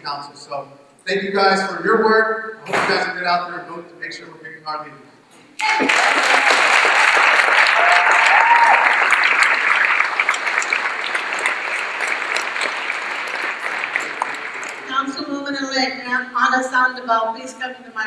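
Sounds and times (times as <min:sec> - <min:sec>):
audience applauding: 0:05.6 - 0:15.4.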